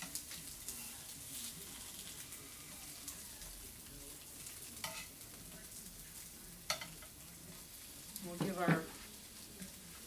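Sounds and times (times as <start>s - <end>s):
peppers sizzling in oil: 0.0s - 10.0s
metal tongs clicking on pan: 4.8s - 5.2s, 6.6s - 7.1s.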